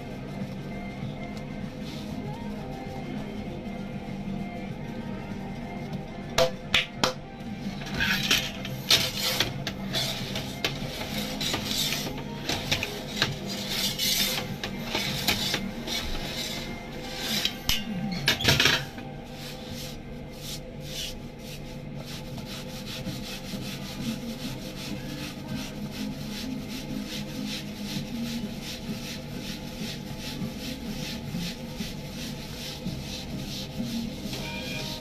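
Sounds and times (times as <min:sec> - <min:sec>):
kitchen equipment humming: 0:07.0 - 0:35.0
hand tool scraping and rubbing: 0:07.8 - 0:35.0.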